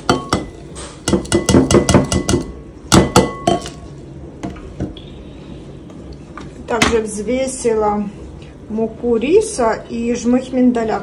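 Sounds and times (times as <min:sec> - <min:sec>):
knocks leaving bowl ringing: 0:00.0 - 0:03.8.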